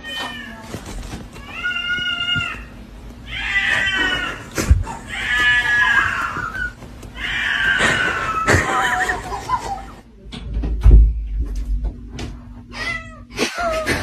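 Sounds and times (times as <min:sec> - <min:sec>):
cat yowling: 0:01.4 - 0:09.3.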